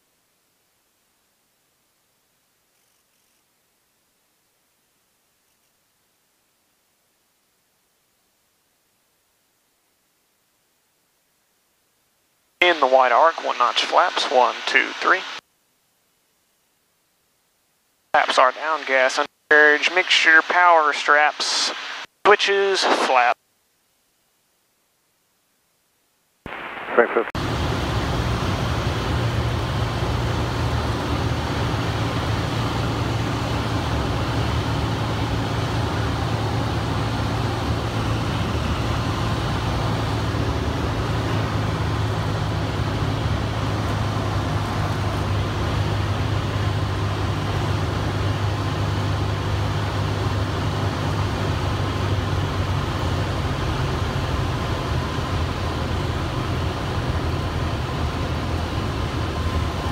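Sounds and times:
airplane engine droning: 0:12.6 - 0:15.4, 0:18.2 - 0:22.0, 0:27.4 - 0:59.9.

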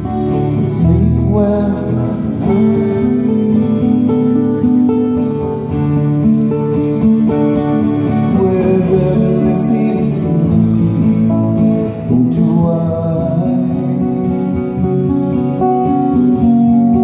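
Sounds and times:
man singing into microphone: 0:00.0 - 0:04.6, 0:08.2 - 0:14.7
acoustic guitar: 0:00.0 - 0:17.0.

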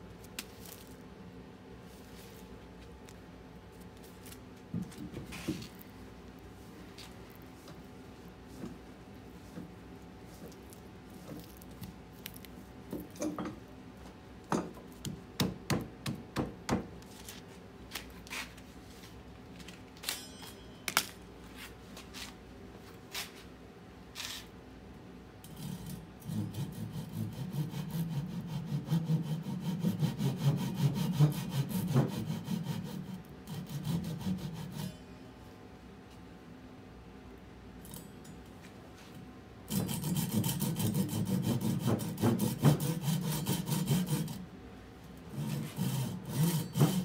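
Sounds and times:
handsaw cutting log: 0:26.2 - 0:34.9, 0:39.7 - 0:44.4, 0:45.3 - 0:47.0.

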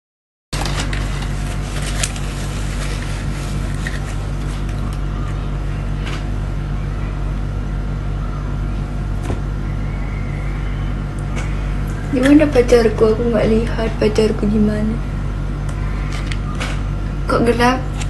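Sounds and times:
low mechanical hum: 0:00.6 - 0:18.0.

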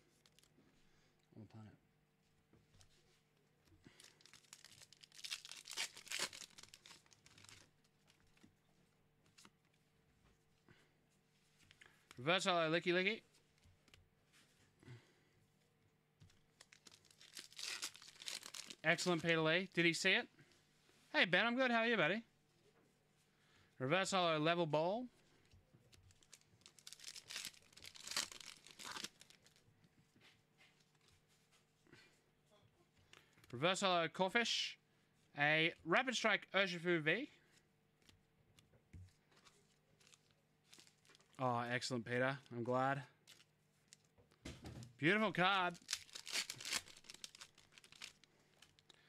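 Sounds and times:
foil wrapper tearing and crinkling: 0:03.9 - 0:07.7, 0:16.6 - 0:19.2, 0:26.1 - 0:29.6, 0:45.6 - 0:48.9.

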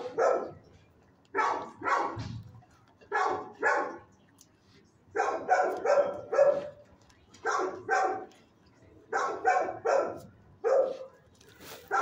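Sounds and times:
dog barking: 0:00.0 - 0:00.6, 0:01.3 - 0:02.2, 0:03.1 - 0:04.0, 0:05.2 - 0:06.8, 0:07.4 - 0:08.3, 0:09.1 - 0:11.2, 0:11.8 - 0:12.0.

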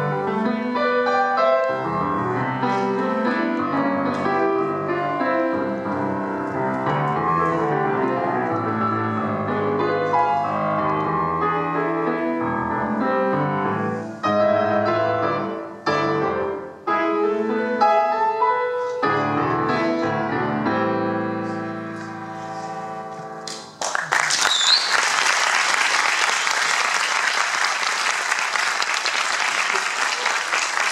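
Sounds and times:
grand piano playing chords: 0:00.0 - 0:23.8
audience applause: 0:23.8 - 0:30.9.

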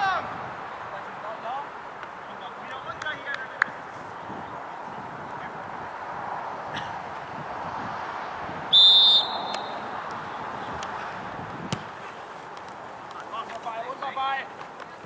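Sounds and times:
outdoor background noise: 0:00.0 - 0:15.0
referee's whistle blast: 0:08.7 - 0:09.8.

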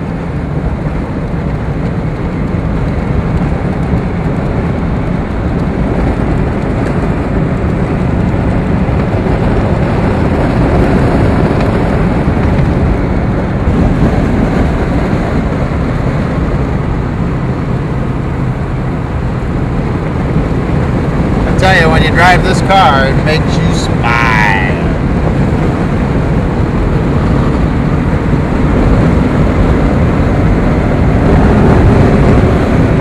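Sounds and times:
car engine running steadily: 0:00.0 - 0:33.0
road and wind noise: 0:00.0 - 0:33.0.

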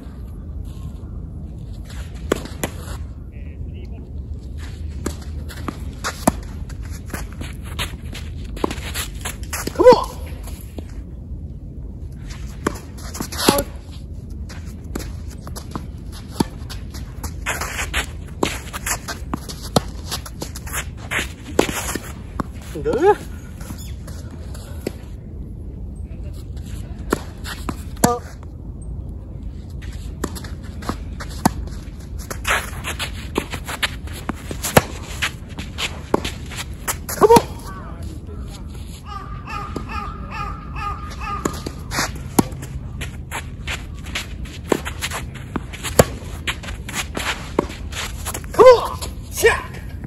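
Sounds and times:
shoe scuffs on court: 0:12.2 - 0:25.1, 0:29.6 - 0:39.0, 0:41.1 - 0:49.4
tennis ball hit by rackets: 0:34.2 - 0:37.7, 0:41.3 - 0:49.1
tennis ball bouncing on court: 0:41.1 - 0:43.2, 0:44.2 - 0:47.8.

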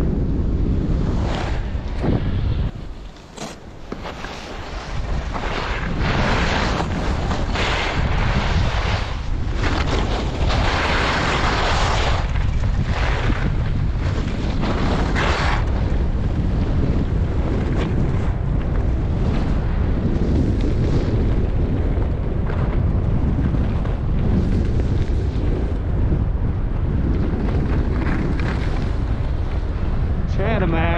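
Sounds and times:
wind rumble on microphone: 0:00.0 - 0:30.9
skis hissing through snow: 0:10.5 - 0:12.3.

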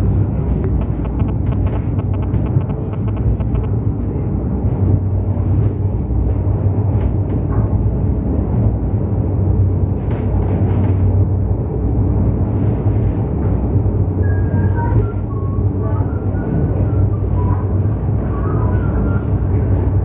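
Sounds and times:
low hum: 0:00.0 - 0:05.7
wheels rumbling on rails: 0:00.0 - 0:20.0.

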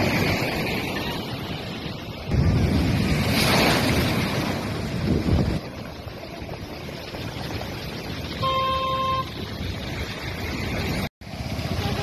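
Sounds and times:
wind buffeting microphone: 0:00.0 - 0:11.7
seawater rushing and foaming: 0:00.0 - 0:12.0
vehicle horn: 0:08.4 - 0:09.4.

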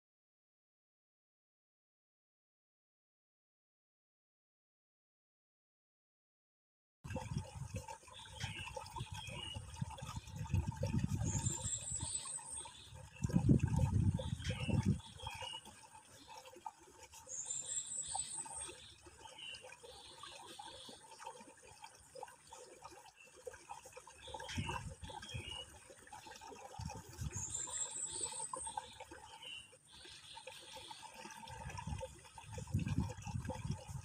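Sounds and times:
water trickling: 0:07.1 - 0:34.0.

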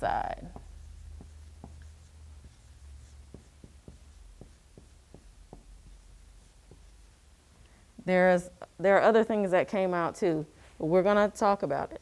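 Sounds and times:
marker writing on whiteboard: 0:00.0 - 0:07.5
low steady hum: 0:00.0 - 0:12.0.

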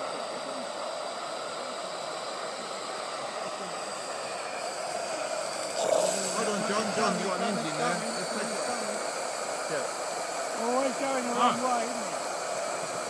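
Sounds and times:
model steam locomotive hissing: 0:00.0 - 0:13.0.

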